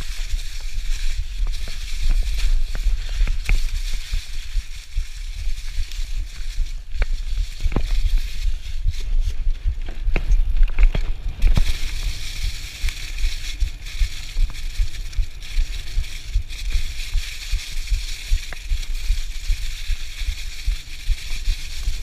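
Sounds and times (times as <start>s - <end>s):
bike tyres crunching through leaves: 0.0s - 22.0s
bike knocks and rattles: 8.9s - 13.1s.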